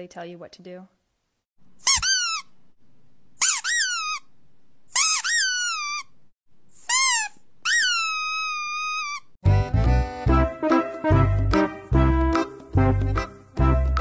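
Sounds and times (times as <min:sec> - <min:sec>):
high-pitched squeaks: 0:01.8 - 0:02.5, 0:03.4 - 0:04.3, 0:04.9 - 0:06.2, 0:06.8 - 0:09.3.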